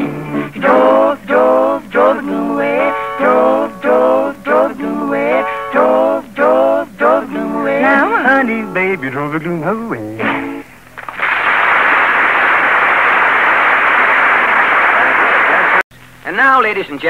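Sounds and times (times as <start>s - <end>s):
man singing: 0.0s - 10.4s
instrumental accompaniment: 0.0s - 10.7s.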